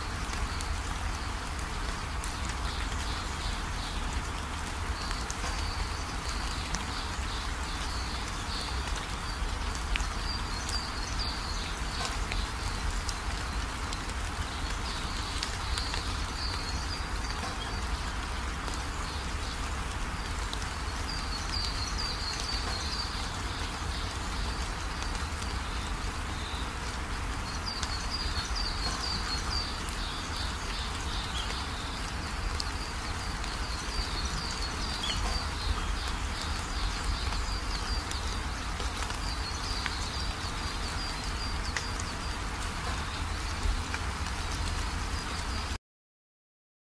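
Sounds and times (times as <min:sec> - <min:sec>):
birds chirping: 0:27.5 - 0:45.7.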